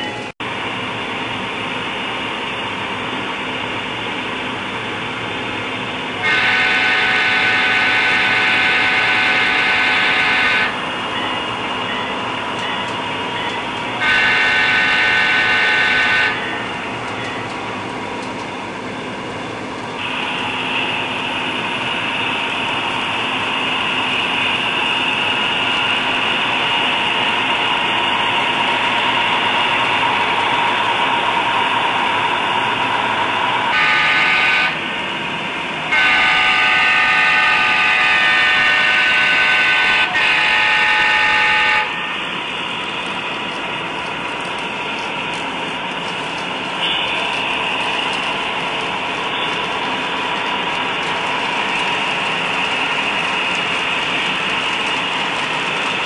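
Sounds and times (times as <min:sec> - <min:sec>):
model train diesel engine running: 0:00.0 - 0:56.0
model train air horn: 0:06.2 - 0:10.8, 0:14.0 - 0:16.6, 0:33.7 - 0:34.9, 0:35.9 - 0:42.2, 0:46.8 - 0:47.4.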